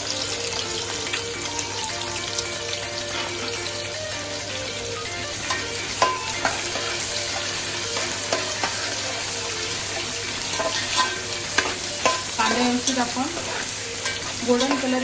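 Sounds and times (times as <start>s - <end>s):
onions sizzling in hot oil: 0.0s - 15.0s
metal spatula clinking on pot: 5.4s - 7.1s, 7.9s - 8.9s, 10.5s - 15.0s.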